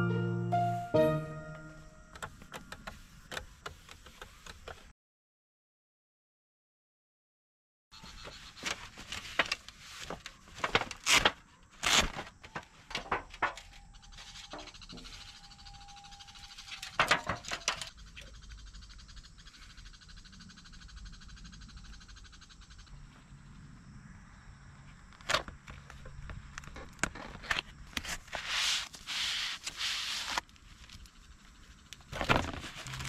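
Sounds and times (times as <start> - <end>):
faint ringing tone: 13.5 - 18.4.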